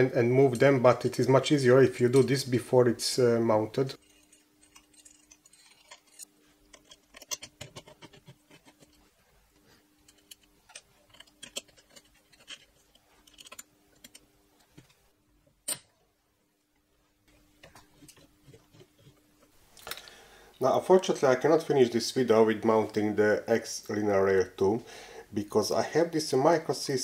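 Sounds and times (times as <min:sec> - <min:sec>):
light metallic clicks and scrapes: 0:04.0 - 0:15.0.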